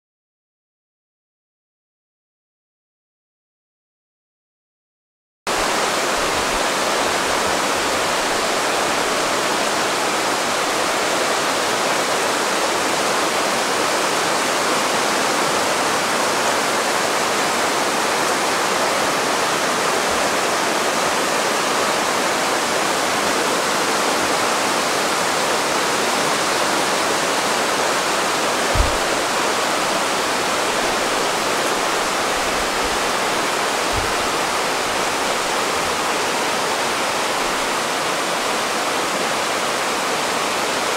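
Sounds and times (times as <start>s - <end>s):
mountain stream water rushing: 5.5s - 40.9s
brief low knock: 28.7s - 29.2s.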